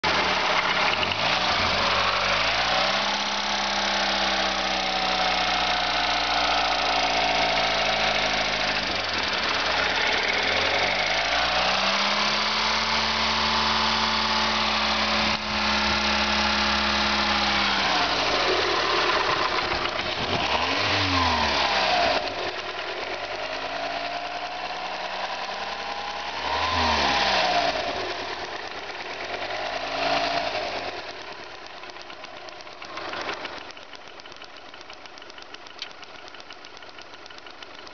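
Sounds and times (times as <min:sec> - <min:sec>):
car engine revving: 0:00.0 - 0:33.9.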